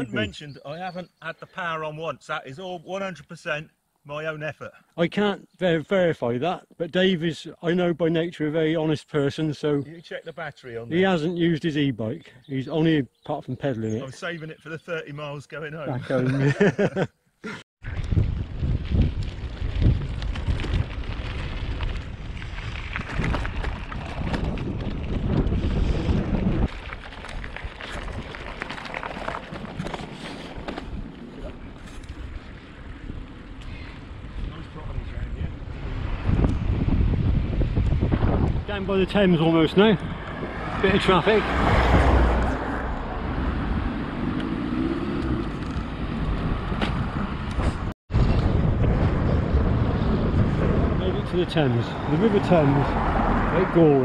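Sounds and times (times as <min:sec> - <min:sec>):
wind buffeting microphone: 0:17.8 - 0:54.0
bicycle tyres crunching on gravel: 0:17.9 - 0:35.1
car driving at low speed: 0:40.0 - 0:54.0
low rumble: 0:45.2 - 0:52.1.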